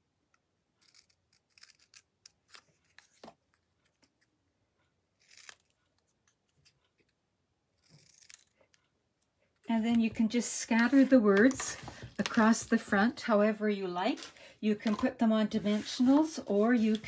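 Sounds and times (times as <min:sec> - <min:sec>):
scissors snipping paper: 0:00.8 - 0:03.2, 0:05.2 - 0:06.8, 0:07.8 - 0:08.6.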